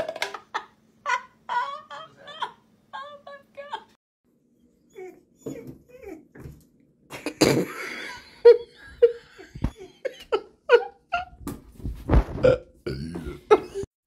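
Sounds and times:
person laughing: 0.3 - 4.0, 7.1 - 11.4, 12.4 - 13.9.

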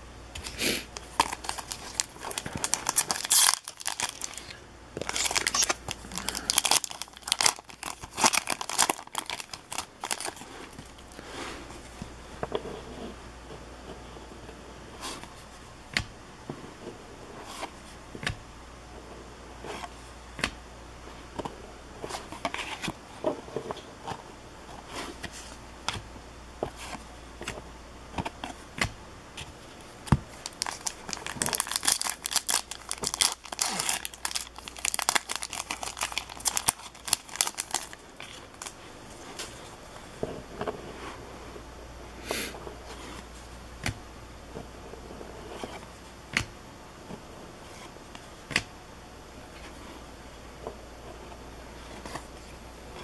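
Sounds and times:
cards shuffled crinkling: 0.9 - 11.2, 30.3 - 39.7.

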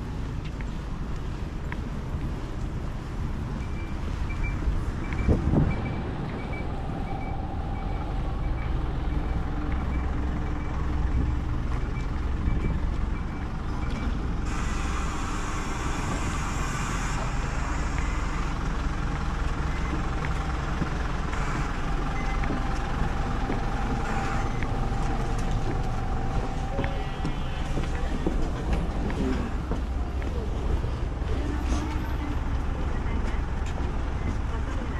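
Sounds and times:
vehicle engines rumbling: 0.0 - 34.9
high electronic warning beep: 3.5 - 18.6, 21.3 - 22.6, 23.8 - 28.0
bus air brakes hissing: 14.4 - 18.6.

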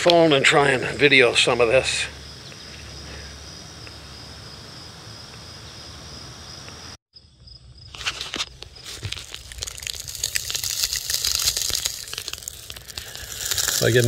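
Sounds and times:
insects chirring: 0.1 - 14.0
rubber gasket crackling and tearing: 8.0 - 14.0.

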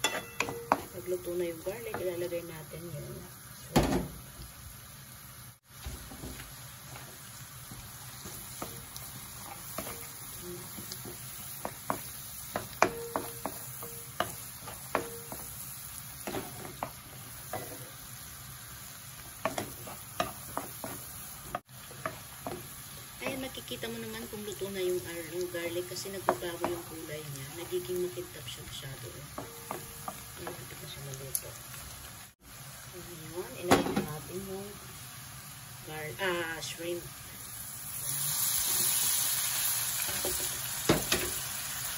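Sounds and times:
garlic sizzling in butter: 0.0 - 41.9
wooden spoon scraping a pan: 8.1 - 15.6, 16.2 - 18.0, 19.4 - 21.2.

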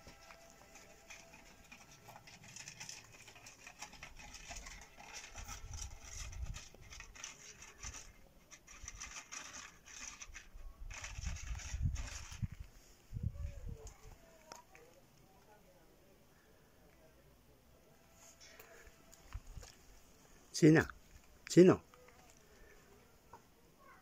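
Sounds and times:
cat crunching food in metal bowl: 0.0 - 12.6.

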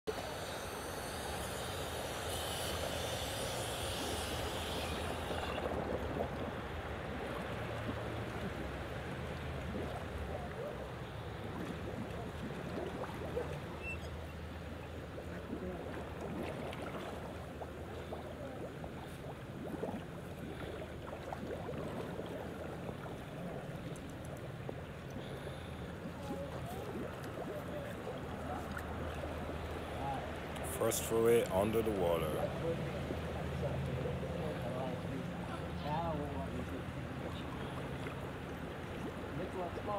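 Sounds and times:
pool water sloshing and bubbling: 0.1 - 39.9
steady low hum: 0.1 - 39.9
regulator bubbles breaking surface: 4.8 - 14.0, 15.2 - 29.6.

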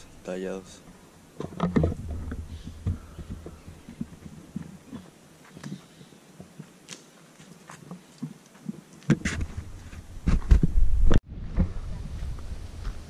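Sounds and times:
footsteps on gravel: 2.0 - 10.5, 12.1 - 13.0.

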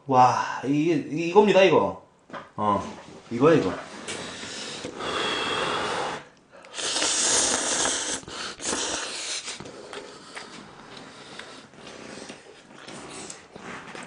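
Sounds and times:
breathy noises: 3.8 - 14.0
man slurping noodles: 4.2 - 14.0.

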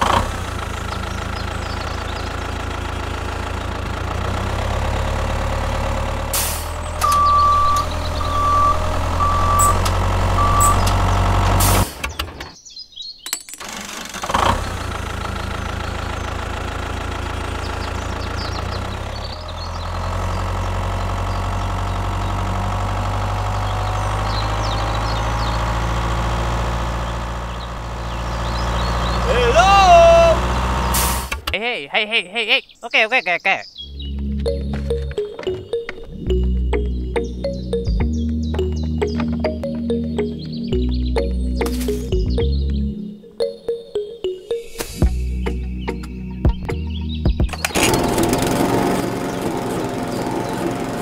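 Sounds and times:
tractor engine idling: 0.0 - 12.4, 13.6 - 31.8, 47.5 - 51.0
short high beeps: 7.0 - 9.8, 10.4 - 10.9.

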